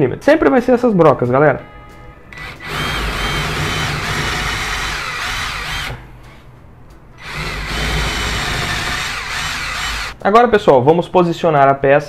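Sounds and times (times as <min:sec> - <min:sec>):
cordless drill boring into wood: 0:02.3 - 0:06.4, 0:07.2 - 0:10.2.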